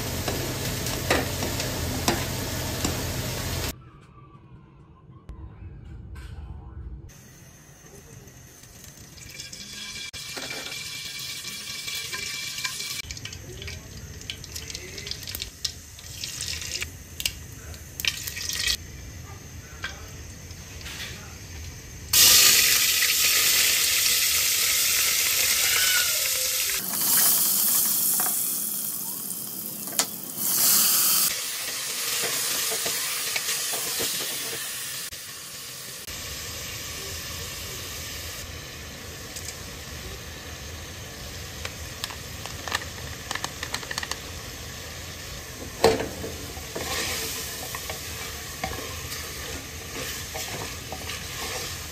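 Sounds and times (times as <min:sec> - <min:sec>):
food frying with stirring: 0:00.0 - 0:03.7, 0:08.7 - 0:18.8, 0:19.8 - 0:51.9
onions sizzling in hot oil: 0:00.0 - 0:03.7, 0:08.4 - 0:13.4, 0:14.0 - 0:19.2, 0:20.1 - 0:51.9
oil pouring into a pot: 0:08.8 - 0:16.8.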